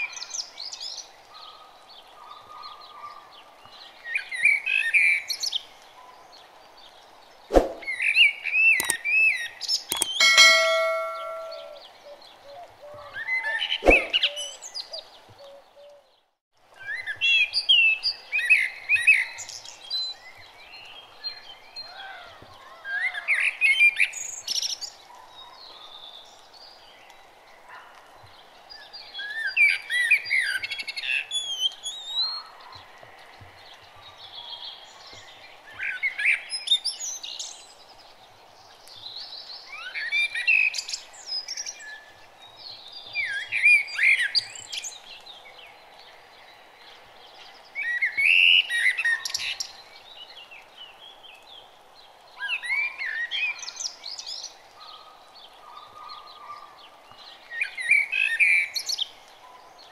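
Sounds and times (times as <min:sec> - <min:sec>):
sharp click: 0:08.8 - 0:09.0, 0:09.9 - 0:11.8.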